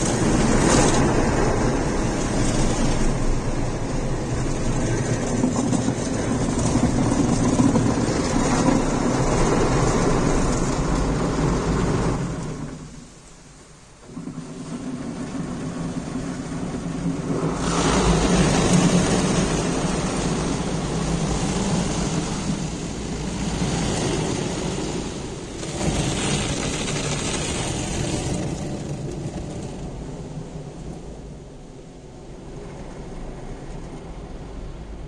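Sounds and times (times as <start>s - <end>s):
machinery hum: 0.0s - 35.0s
water spraying on windshield: 14.1s - 30.5s.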